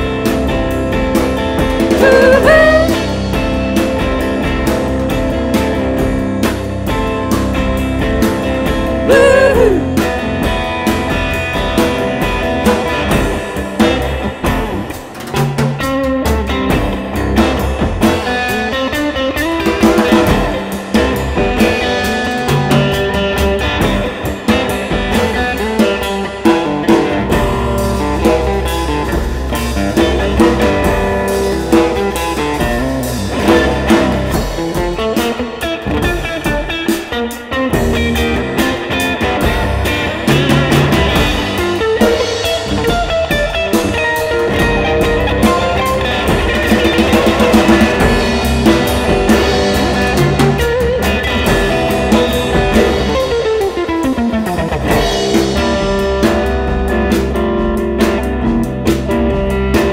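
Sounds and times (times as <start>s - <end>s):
drum kit: 0.0s - 59.9s
electric guitar playing: 0.0s - 59.9s.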